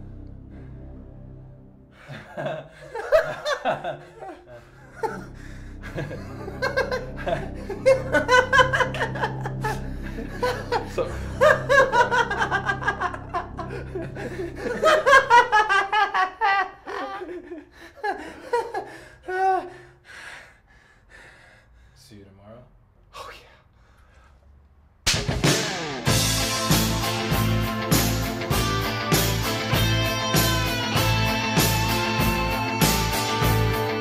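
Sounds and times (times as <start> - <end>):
man laughing: 2.0 - 19.7.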